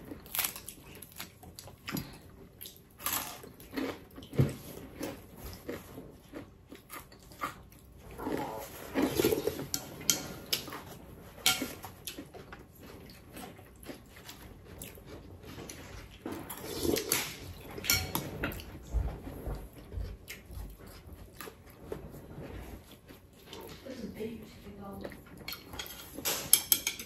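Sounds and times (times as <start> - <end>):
chewing: 0.0 - 27.0
slurping from spoons: 8.1 - 10.7
spoons clinking on ceramic bowls: 17.8 - 18.2, 25.5 - 27.0.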